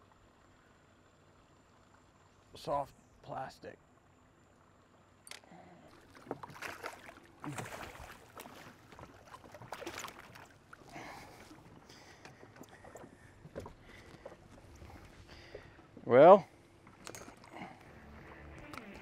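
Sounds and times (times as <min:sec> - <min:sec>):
fish splashing at surface: 0:06.0 - 0:10.5.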